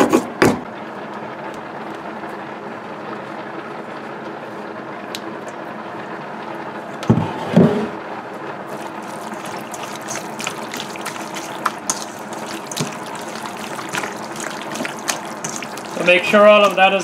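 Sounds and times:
steady background hum: 0:00.0 - 0:17.0
wet squelching of raw chicken: 0:08.7 - 0:17.0.

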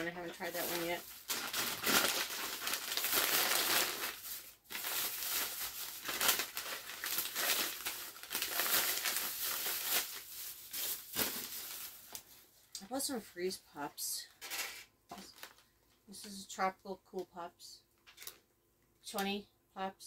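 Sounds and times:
plastic bag crinkling: 0:00.0 - 0:12.5, 0:14.5 - 0:15.7, 0:18.0 - 0:18.5.

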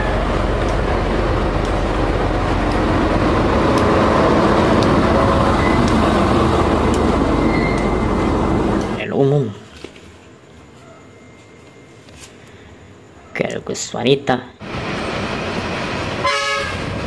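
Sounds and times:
diesel locomotive engine: 0:00.0 - 0:09.2, 0:14.6 - 0:17.0
sharp clicks: 0:05.8 - 0:06.0, 0:08.7 - 0:09.0.

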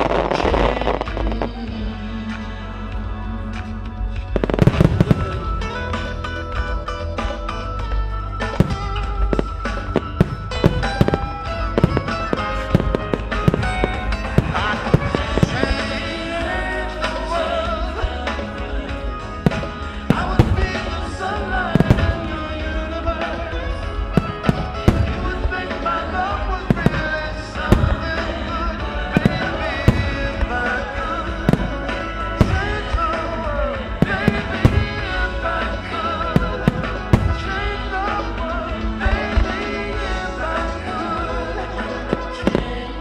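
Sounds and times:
music with wavering melody: 0:00.0 - 0:43.0
firework shells bursting: 0:08.3 - 0:16.3.

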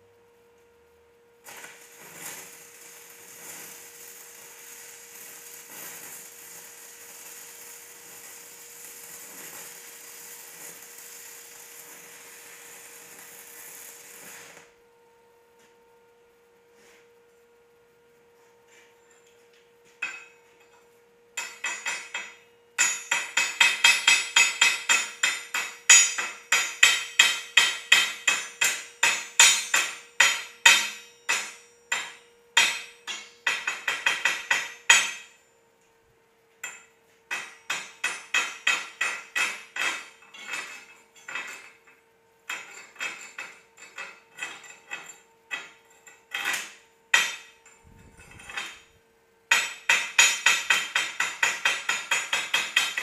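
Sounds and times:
hammer striking steel plate: 0:21.4 - 0:35.4, 0:36.6 - 0:41.5, 0:46.4 - 0:47.6, 0:49.5 - 0:53.0.

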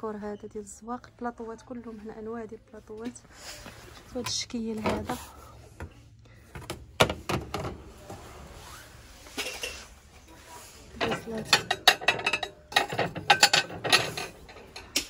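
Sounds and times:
plates and trays clinking: 0:09.3 - 0:09.9, 0:10.9 - 0:15.0.

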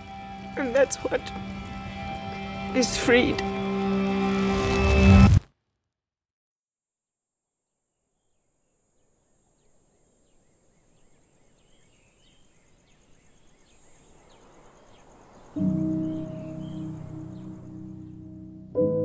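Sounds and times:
low outdoor hush: 0:00.0 - 0:04.6
bird chirps: 0:09.5 - 0:18.5.

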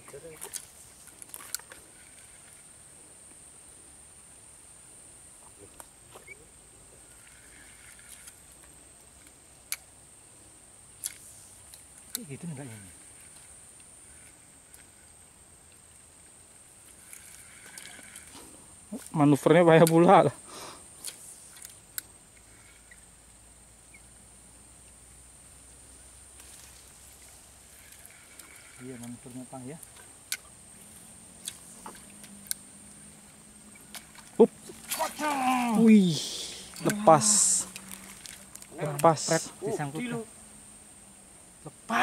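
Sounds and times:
steady high-pitched whine: 0:00.0 - 0:42.0
high-pitched insect drone: 0:27.6 - 0:42.0.

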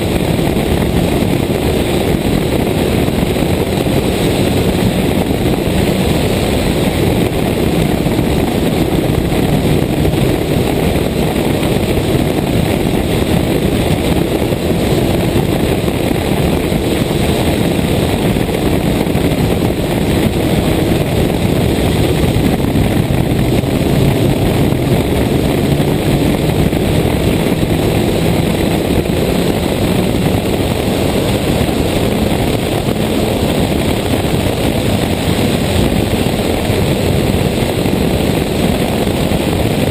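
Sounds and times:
rally car engine running hard: 0:00.0 - 0:39.9
wind noise on microphone: 0:00.0 - 0:39.9.

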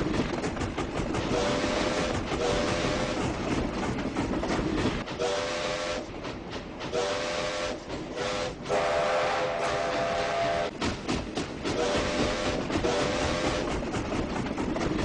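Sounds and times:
train running noise: 0:00.0 - 0:15.0
train whistle blasts: 0:05.2 - 0:06.1, 0:06.9 - 0:10.7, 0:11.8 - 0:13.6.

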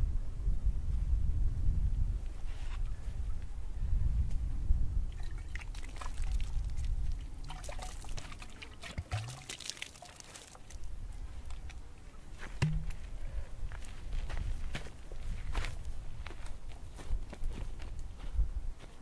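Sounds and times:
water trickling into hand: 0:05.1 - 0:11.8
hollow knock of gourd: 0:12.6 - 0:13.0.

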